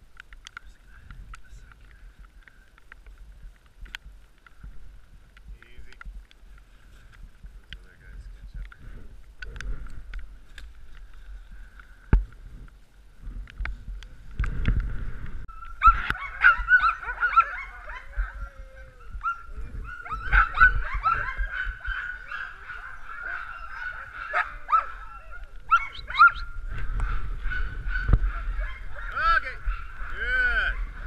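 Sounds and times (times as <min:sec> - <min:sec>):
dogs whining: 0:15.5 - 0:31.0
dogs yelping: 0:15.5 - 0:31.0.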